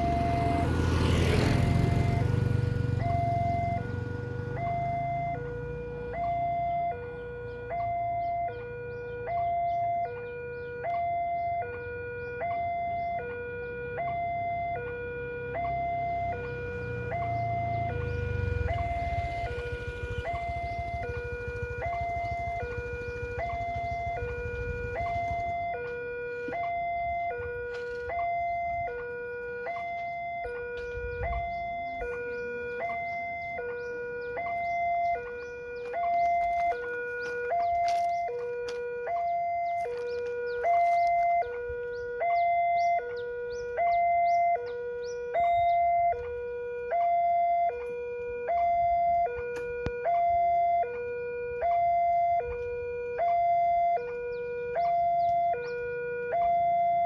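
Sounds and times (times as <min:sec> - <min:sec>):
level crossing alarm two-tone: 0:01.8 - 0:05.6, 0:42.2 - 0:43.1, 0:43.8 - 0:44.6, 0:54.8 - 0:57.0.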